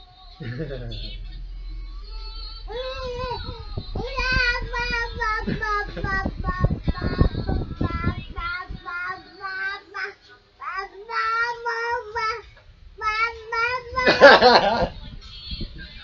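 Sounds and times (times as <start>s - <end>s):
low bumping noises: 0.4s - 10.0s, 10.8s - 16.0s.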